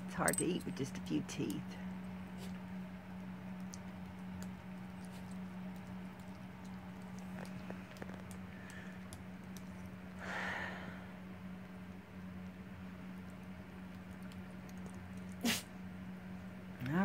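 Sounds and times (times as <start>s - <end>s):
dog crunching a treat: 2.3s - 10.2s, 13.1s - 15.4s.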